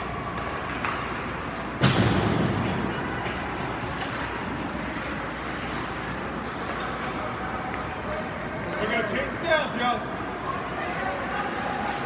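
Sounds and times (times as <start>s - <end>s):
loud thud against rink boards: 1.8s - 2.9s.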